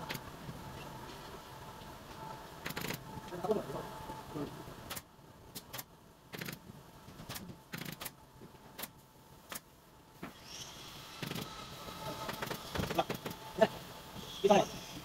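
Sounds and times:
pneumatic staple gun firing: 7.7 - 8.1, 11.2 - 11.5.

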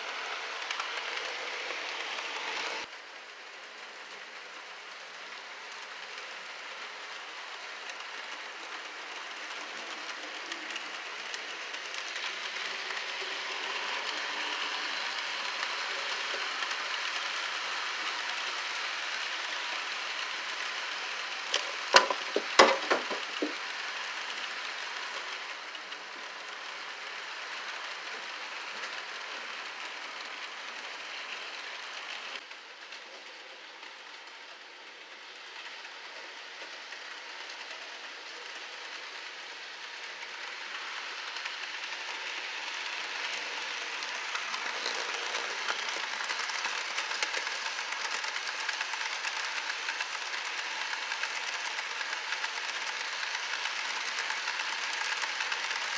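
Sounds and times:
model train cars rolling: 0.0 - 55.9.

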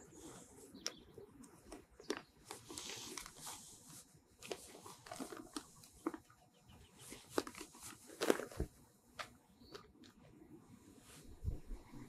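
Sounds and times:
plastic bag crinkling: 4.4 - 6.2, 7.1 - 8.7.

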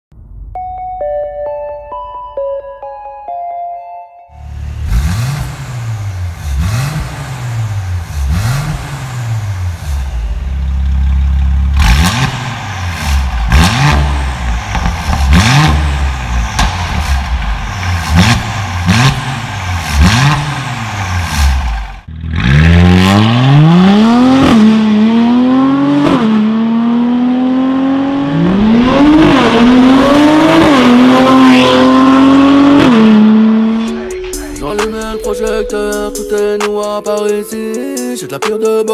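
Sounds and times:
car engine revving: 4.4 - 36.4
car accelerating through gears: 4.7 - 10.1, 11.7 - 34.0.

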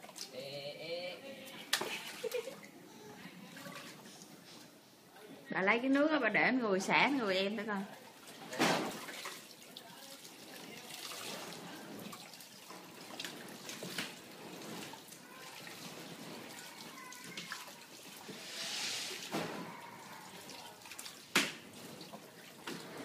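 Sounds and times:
water splashing and trickling: 1.7 - 2.7, 3.4 - 4.3, 7.8 - 23.0.

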